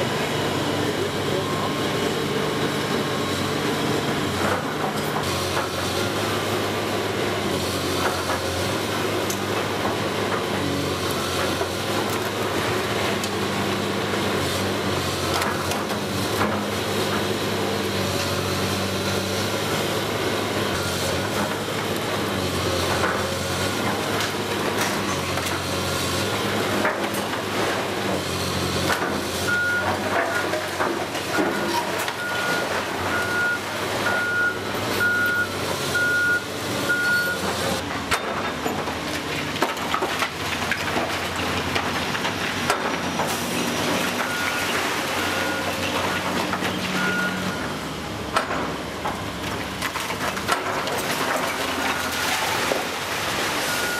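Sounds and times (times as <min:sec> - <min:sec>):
excavator diesel engine: 0:00.0 - 0:53.9
reversing alarm beeping: 0:29.5 - 0:30.5, 0:31.3 - 0:37.5, 0:44.2 - 0:45.8, 0:47.0 - 0:47.7, 0:53.6 - 0:53.9
falling bricks clattering: 0:38.0 - 0:46.9.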